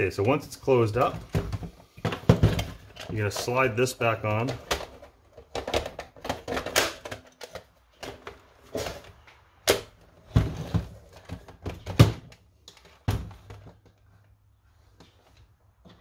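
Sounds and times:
plastic parts clacking: 0.2 - 10.0.

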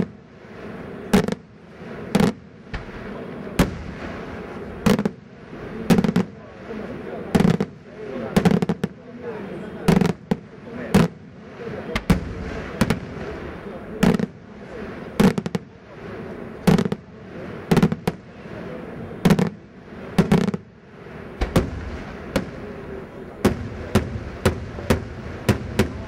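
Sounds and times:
fireworks shells bursting: 0.0 - 6.4, 7.3 - 9.0, 15.0 - 15.8, 20.2 - 20.7, 21.3 - 22.8, 23.4 - 26.0.

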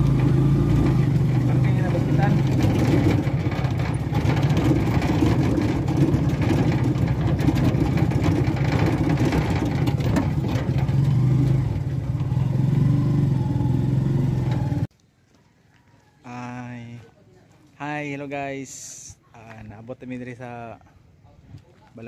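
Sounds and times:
motorcycle engine running: 0.0 - 14.9
road and wind noise: 0.0 - 14.9.

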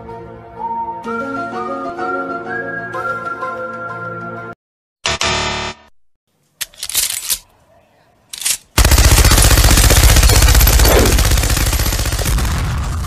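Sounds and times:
machine gun burst: 8.8 - 13.0.

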